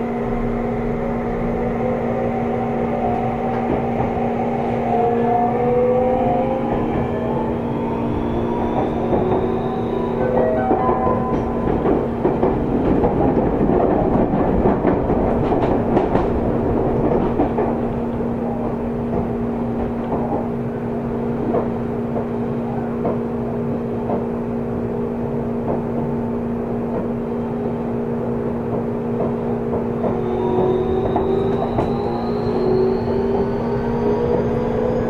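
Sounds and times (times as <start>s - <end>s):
clicks from train: 3.1s - 4.2s, 10.2s - 20.5s, 21.4s - 23.3s, 24.0s - 24.4s, 25.6s - 26.1s, 26.8s - 27.8s, 28.6s - 34.6s.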